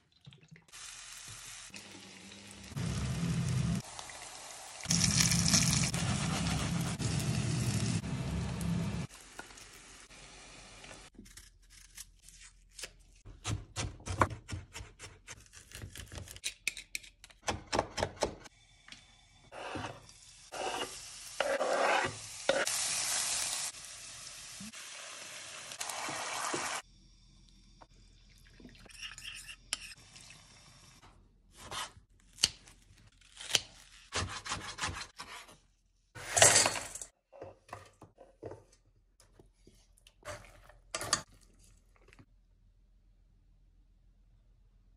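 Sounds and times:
oil sizzling: 0.7s - 11.1s, 19.6s - 26.8s.

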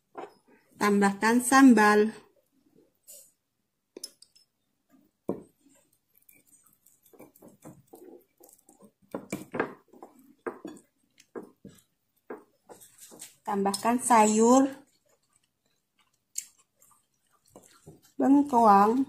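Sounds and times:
metal teaspoon clinking and scraping: 4.0s - 4.5s, 5.7s - 8.9s.

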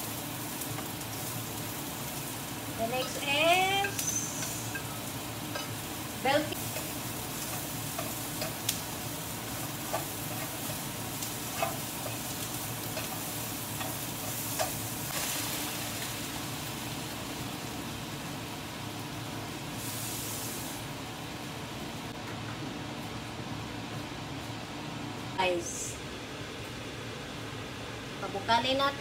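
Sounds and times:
vegetables sizzling in a wok: 0.0s - 29.0s
spatula tapping pan: 6.6s - 8.8s, 11.5s - 14.8s
liquid poured into hot pan hissing: 15.1s - 16.7s, 19.8s - 20.9s.

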